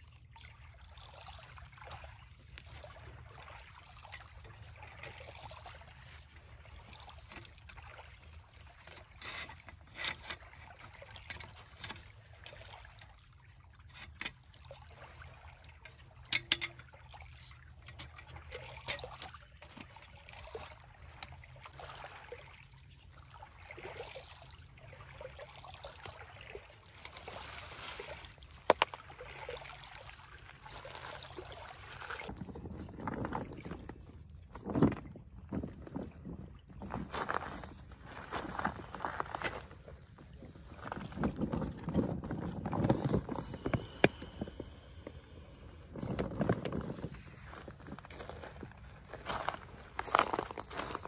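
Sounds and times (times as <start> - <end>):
camp furniture clicks and rustles: 15.9 - 19.9, 32.0 - 51.0
waves lapping on pebbly shore: 18.7 - 34.9, 36.8 - 51.0.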